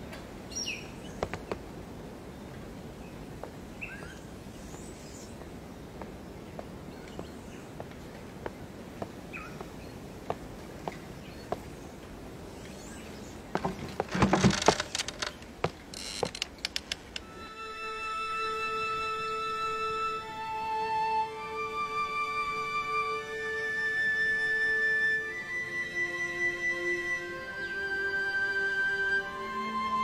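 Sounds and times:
steady hiss: 0.0 - 30.0
light footsteps: 0.1 - 1.9, 2.5 - 17.2
sharp clicks: 14.4 - 17.2
music: 17.2 - 30.0.

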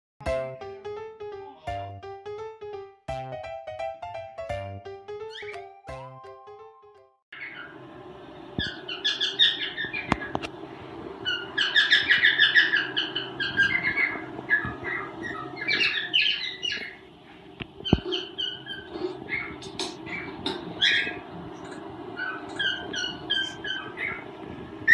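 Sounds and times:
cockatiel chirping: 5.3 - 5.6, 7.4 - 7.7, 8.6 - 10.3, 11.2 - 17.0, 17.8 - 21.2, 22.2 - 24.2.

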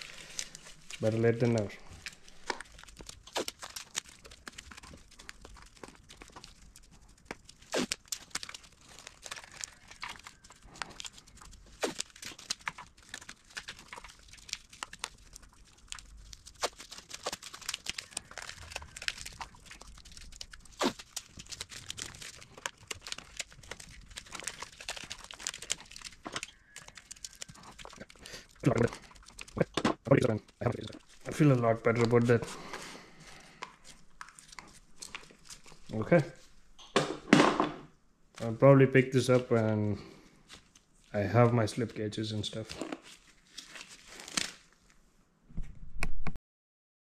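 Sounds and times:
plastic and paper crinkling: 0.0 - 36.7, 38.3 - 45.0
tape being pulled and torn: 2.4 - 5.4, 7.2 - 15.0, 16.3 - 26.6, 42.6 - 44.9.

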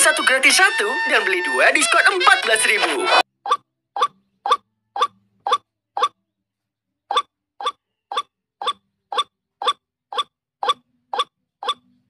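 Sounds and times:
waterhen calling clipped notes: 7.1 - 11.9.

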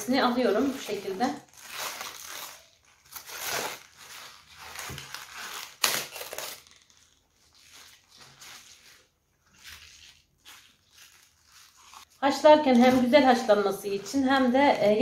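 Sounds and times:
cabbage leaves crackling and rustling: 0.0 - 15.0
sharp crack of cabbage leaf: 4.7 - 7.0.

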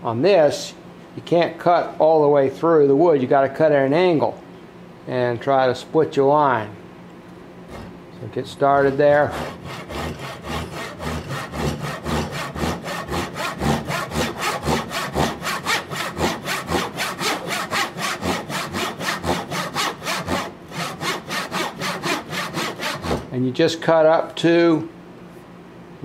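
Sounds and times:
hand saw cutting wood: 7.7 - 8.0, 8.7 - 23.4.

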